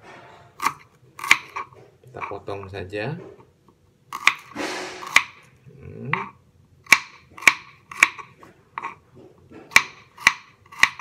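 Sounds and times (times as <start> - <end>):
knife chopping on wooden board: 0.1 - 2.3, 4.1 - 5.5, 6.1 - 11.0.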